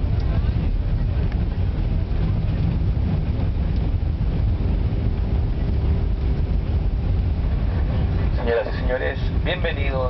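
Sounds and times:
jet engine and airflow rumble: 0.0s - 10.0s.

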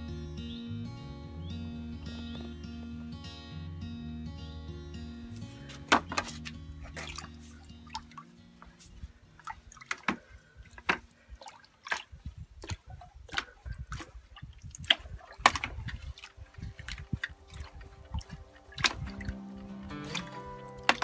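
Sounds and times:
water sloshing in bucket: 5.5s - 21.0s.

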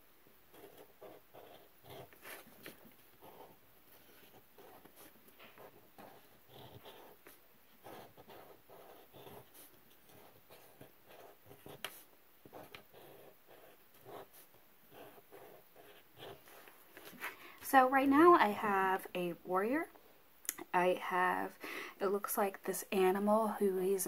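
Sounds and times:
marker drawing on paper: 0.5s - 17.3s.

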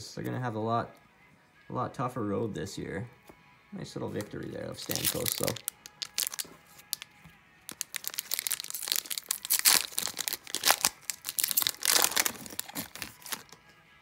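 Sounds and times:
foil wrapper crinkling and tearing: 4.8s - 7.1s, 7.7s - 13.6s.

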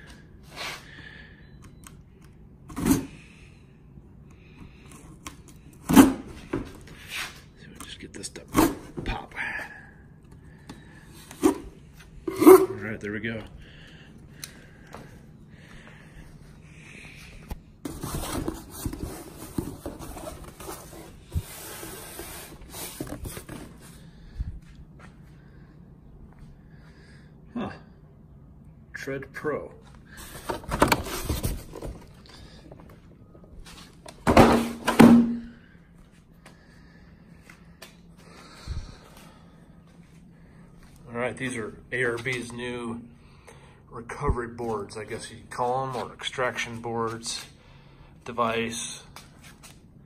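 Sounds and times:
cardboard scraping and rustling: 17.8s - 23.8s, 30.2s - 32.2s.

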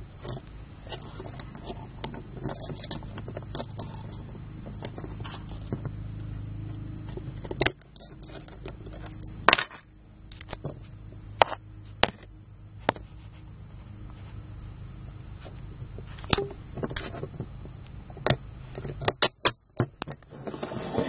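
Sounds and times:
handcuffs ratcheting clicks: 7.6s - 8.4s.

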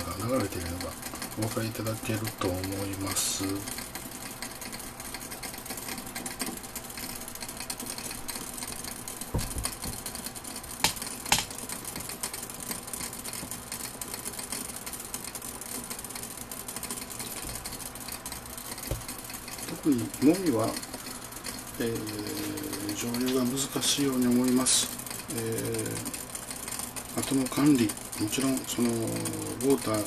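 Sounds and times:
water boiling in glass flask: 0.0s - 30.0s
dull knock: 9.3s - 10.0s, 18.8s - 19.1s.

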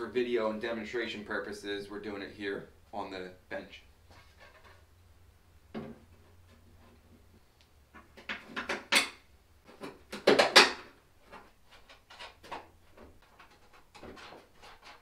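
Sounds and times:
parts knocking and clunking: 5.7s - 6.7s, 7.9s - 14.4s.

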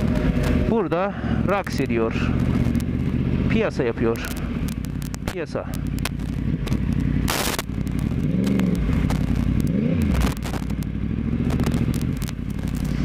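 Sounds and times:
motorcycle engine revving: 0.0s - 13.0s
sharp clicks: 4.1s - 12.9s.

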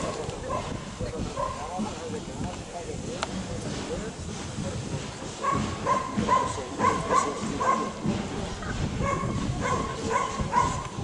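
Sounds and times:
dog barking in high yaps: 9.0s - 10.8s.

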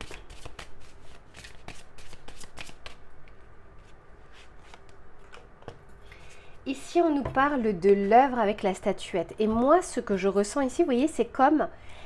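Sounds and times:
cards being shuffled: 0.0s - 3.0s.

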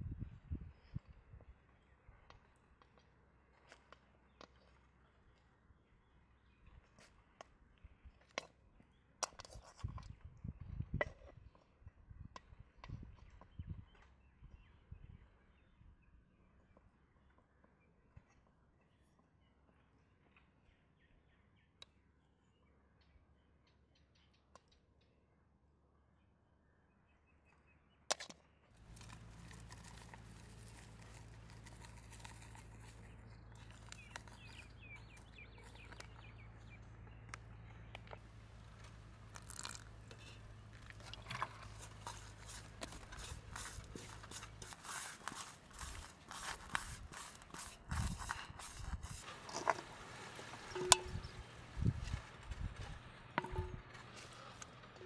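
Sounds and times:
plastic bag rustling: 28.8s - 35.3s, 39.3s - 51.0s
small bird chirping: 28.9s - 38.3s
powder tipped into metal bowl: 39.3s - 51.3s.

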